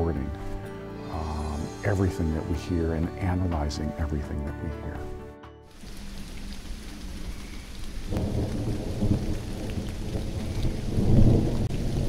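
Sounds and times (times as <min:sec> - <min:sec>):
steady rain: 0:05.7 - 0:12.0
thunder rumbling: 0:05.9 - 0:12.0.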